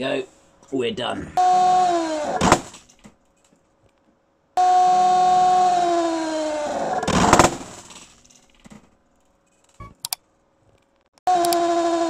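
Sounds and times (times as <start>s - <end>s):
drill motor whining: 1.4s - 2.6s, 4.6s - 7.6s, 11.3s - 12.0s.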